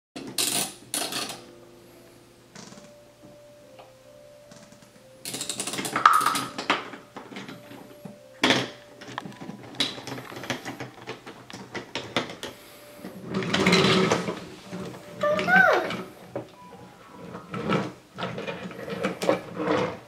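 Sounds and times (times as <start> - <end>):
toy train clattering on wooden track: 4.5 - 7.8, 8.4 - 12.6, 13.2 - 15.0, 17.2 - 20.0.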